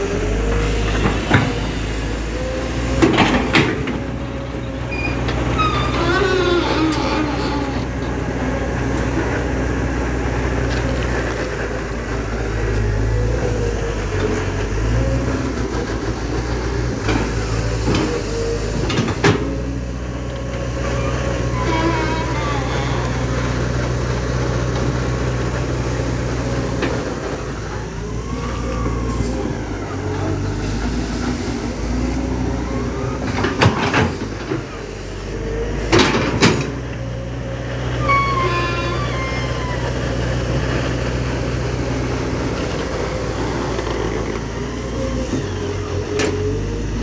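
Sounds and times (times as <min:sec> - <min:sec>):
diesel engine running: 0:00.0 - 0:47.0
hydraulics working: 0:00.0 - 0:47.0.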